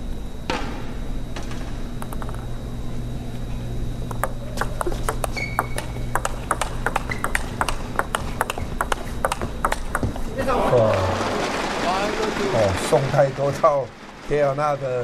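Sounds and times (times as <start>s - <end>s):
table tennis ball clicking: 2.0s - 2.4s, 4.1s - 10.3s.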